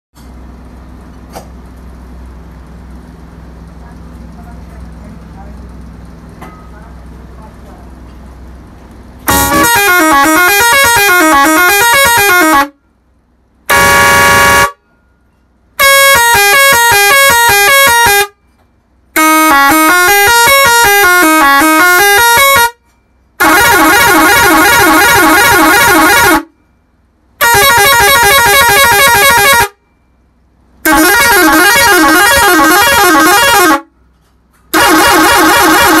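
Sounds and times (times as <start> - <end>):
air horn playing tune: 9.3 - 12.8, 13.7 - 14.9, 15.8 - 18.4, 19.1 - 22.8, 23.4 - 26.6, 27.4 - 29.8, 30.8 - 33.9, 34.7 - 36.0.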